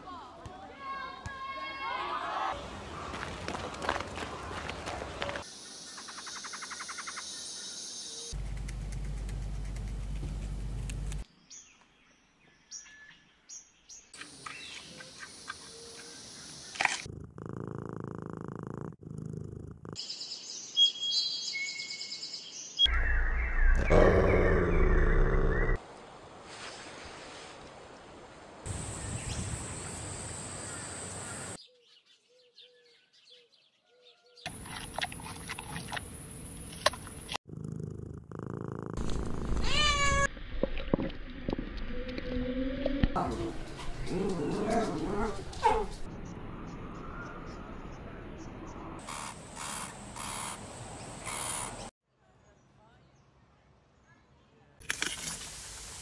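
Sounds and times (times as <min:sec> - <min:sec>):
outdoor hiss: 0:54.9 - 0:56.0.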